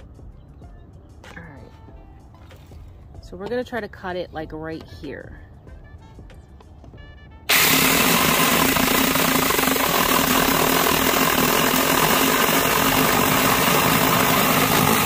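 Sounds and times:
electric chainsaw cutting wood: 7.5s - 15.0s.

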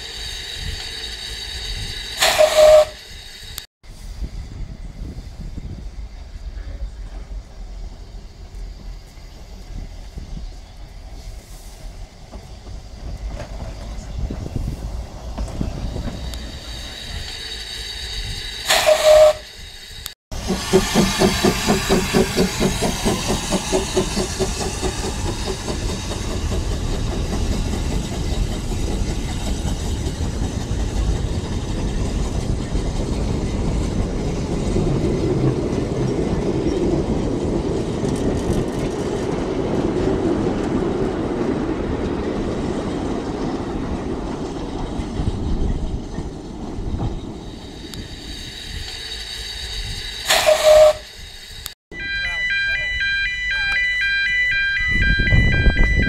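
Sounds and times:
steam engine chuffing: 0.0s - 3.6s, 11.1s - 35.6s, 44.8s - 51.7s
steam whistle blast: 2.2s - 3.1s, 18.7s - 19.6s, 50.3s - 51.2s.

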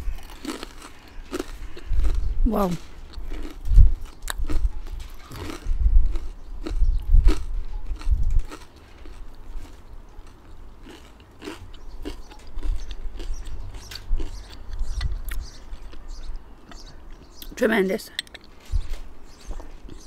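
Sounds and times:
chewing: 0.0s - 2.3s, 3.0s - 17.6s, 19.6s - 20.0s
crunching chips: 0.0s - 14.7s.

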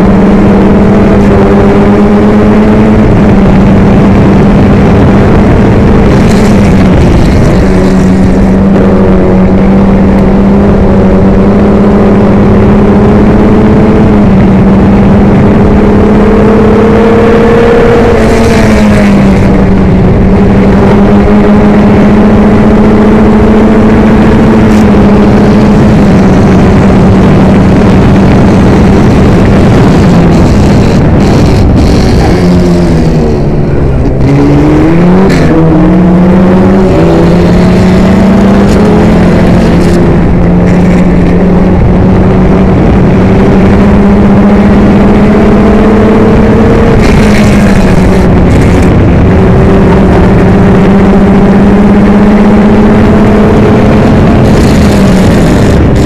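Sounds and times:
racing car engine at high revs: 0.0s - 56.0s
rushing air: 2.8s - 10.8s.

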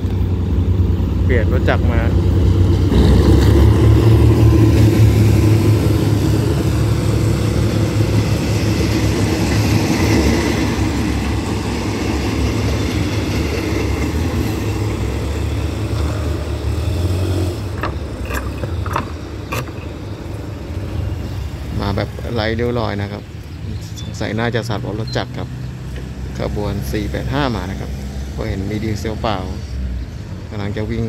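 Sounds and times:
diesel locomotive engine: 0.0s - 31.0s
train coaches rolling on rails: 0.0s - 31.0s
sharp clicks: 17.7s - 20.4s.

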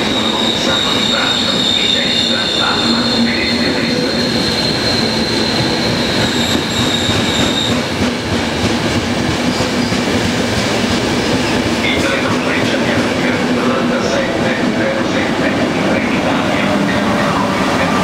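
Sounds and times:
high wheel squeal: 0.0s - 7.9s
train wheels rumbling on rails: 0.0s - 18.0s.

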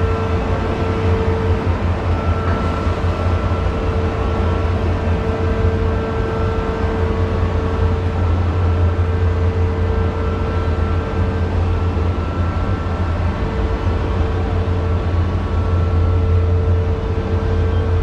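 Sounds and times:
faint steady whine: 0.0s - 18.0s.

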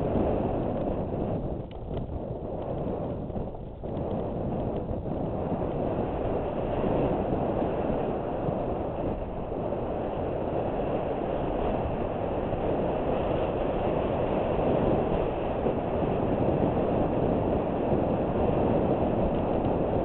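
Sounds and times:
bike rattling: 0.0s - 7.4s
bike tyres rolling over dirt: 0.0s - 20.0s
wind rushing over microphone: 0.0s - 20.0s.

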